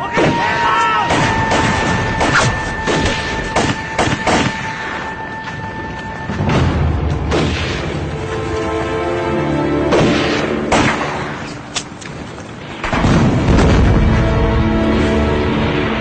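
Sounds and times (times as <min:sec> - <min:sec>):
gunshots: 0:00.0 - 0:05.1, 0:06.4 - 0:08.1, 0:09.9 - 0:11.7
background music: 0:00.0 - 0:12.0, 0:12.7 - 0:16.0
deep booms: 0:12.8 - 0:16.0.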